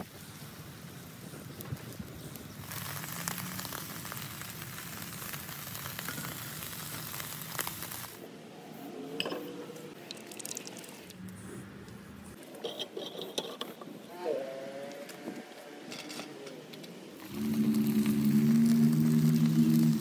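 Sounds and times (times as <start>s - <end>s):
fire crackling pops: 0.0s - 8.2s, 17.2s - 20.0s
steak sizzling over fire: 0.0s - 8.2s, 17.2s - 20.0s.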